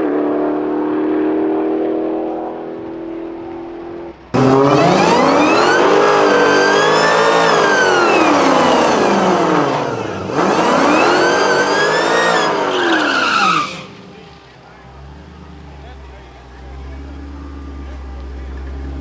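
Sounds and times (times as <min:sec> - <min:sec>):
car engine revving hard: 0:04.3 - 0:14.0.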